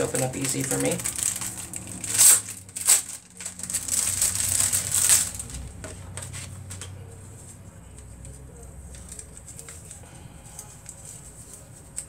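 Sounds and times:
packaging crinkling and tearing: 0:00.0 - 0:06.8.

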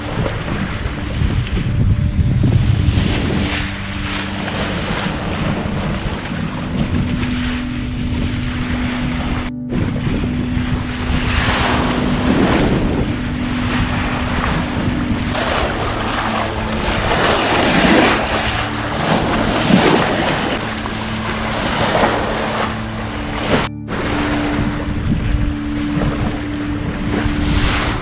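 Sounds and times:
boat engine humming: 0:00.0 - 0:28.0
bow wave rushing and splashing: 0:00.0 - 0:28.0
wind buffeting microphone: 0:00.0 - 0:28.0.

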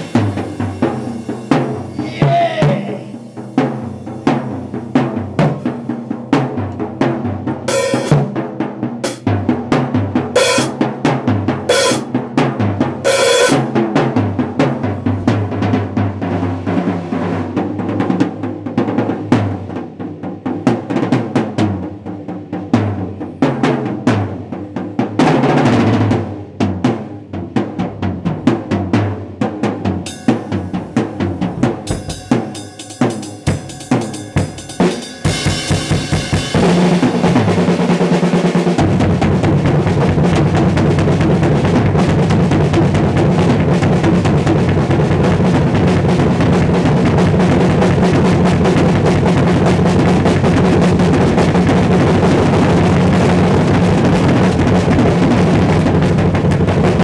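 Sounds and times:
cymbal crashes: 0:00.0 - 0:06.0, 0:30.1 - 0:37.9
bass drum strokes: 0:00.0 - 0:08.4, 0:29.9 - 0:57.0
drum solo rolls: 0:00.0 - 0:57.0.

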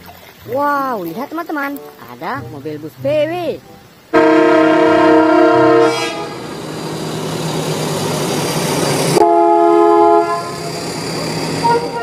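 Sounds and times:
bus engines and road noise: 0:03.4 - 0:12.0
vehicle air horn chord: 0:04.1 - 0:06.5, 0:09.2 - 0:10.7, 0:11.6 - 0:12.0.

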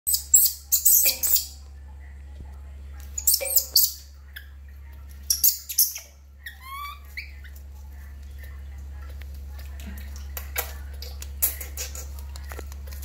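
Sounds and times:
baby monkey screaming: 0:05.3 - 0:07.3.

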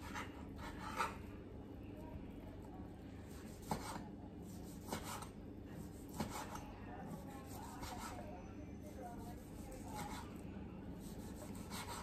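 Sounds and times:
knife slicing meat: 0:00.0 - 0:01.2, 0:03.3 - 0:08.2, 0:09.2 - 0:10.3, 0:11.0 - 0:12.0.

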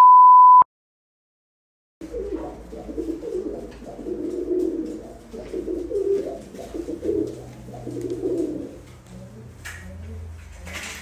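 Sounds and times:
pigeon cooing: 0:02.0 - 0:09.4.

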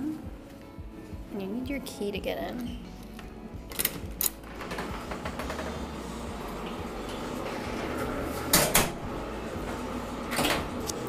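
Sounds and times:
door opening: 0:03.7 - 0:11.0.

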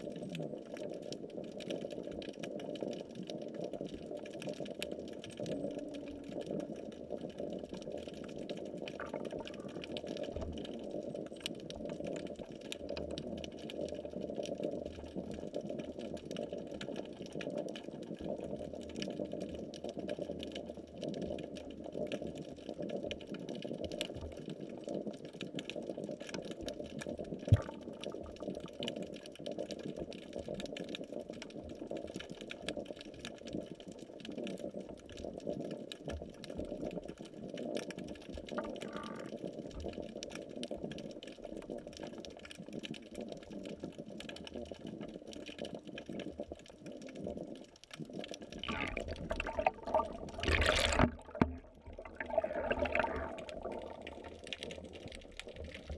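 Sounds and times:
faint clicks: 0:00.0 - 0:55.9
muffled underwater rushing: 0:45.7 - 0:55.9.

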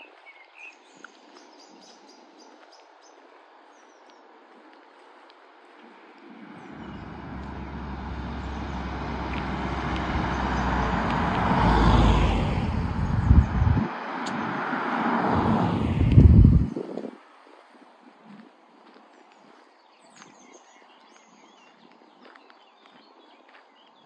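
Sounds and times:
cars passing by: 0:06.1 - 0:17.2.

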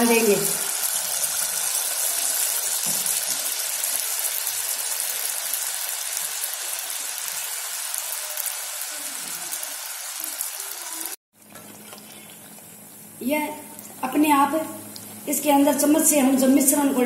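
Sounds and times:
batter sizzling in hot oil: 0:00.0 - 0:11.2.

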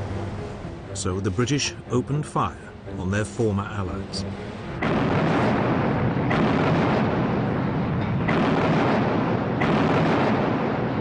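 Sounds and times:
heavy guns firing: 0:04.8 - 0:07.6, 0:08.2 - 0:11.0.

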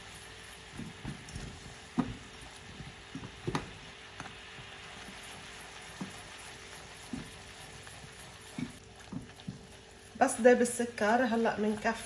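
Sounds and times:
syrup bubbling and hissing: 0:00.0 - 0:12.0.

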